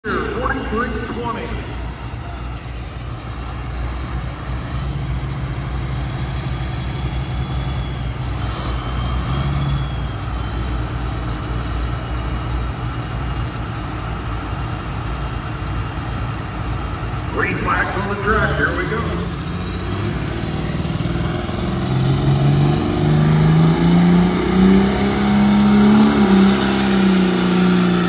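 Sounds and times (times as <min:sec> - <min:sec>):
tractor engine idling: 0:00.0 - 0:09.2, 0:09.8 - 0:21.9.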